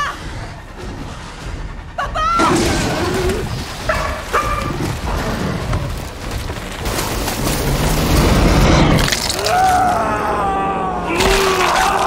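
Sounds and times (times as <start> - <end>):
deep rumbling booming effects: 0.0 - 9.4.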